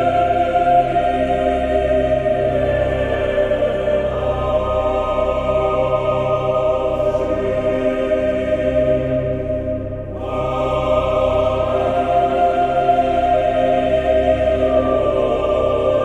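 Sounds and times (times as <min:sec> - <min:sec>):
choral voices holding chords: 0:00.0 - 0:16.0
low drone: 0:00.0 - 0:16.0.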